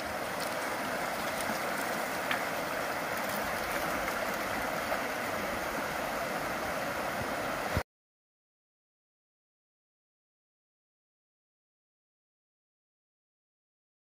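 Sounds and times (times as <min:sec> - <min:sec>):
creek running over rocks: 0:00.0 - 0:07.8.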